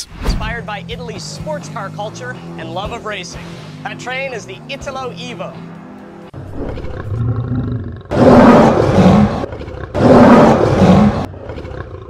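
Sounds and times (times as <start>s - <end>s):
lion growling: 6.4s - 12.0s
lion roaring: 6.4s - 12.0s.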